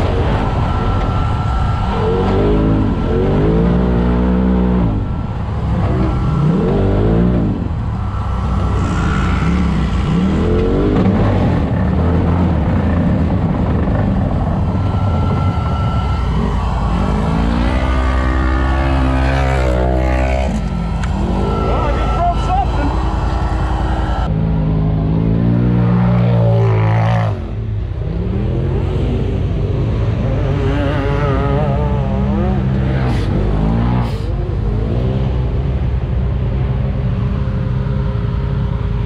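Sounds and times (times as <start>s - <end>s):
thin high whine: 0.0s - 24.4s
race vehicle engine revving: 0.0s - 39.0s.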